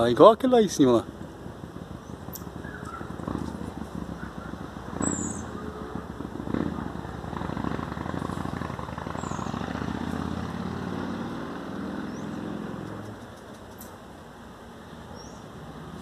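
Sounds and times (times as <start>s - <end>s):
vehicle engine passing: 0.7s - 13.3s.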